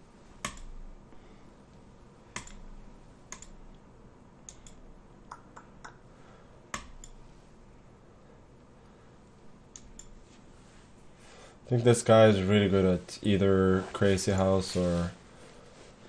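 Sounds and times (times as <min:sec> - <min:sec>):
computer mouse clicks: 0:00.4 - 0:00.8, 0:02.3 - 0:02.7, 0:03.3 - 0:03.8, 0:04.4 - 0:06.0, 0:06.7 - 0:07.2, 0:09.7 - 0:10.2.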